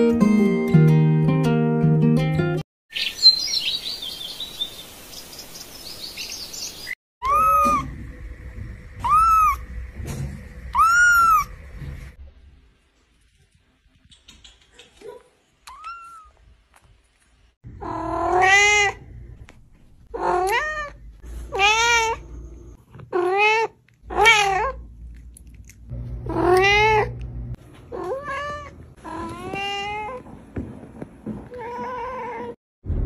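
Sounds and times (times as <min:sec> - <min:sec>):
cat meowing loudly: 0:07.2 - 0:07.9.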